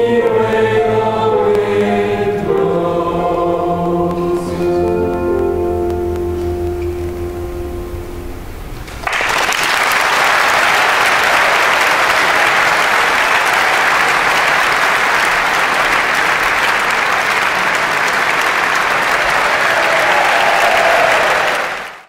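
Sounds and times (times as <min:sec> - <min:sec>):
audience applauding: 0:08.9 - 0:22.0.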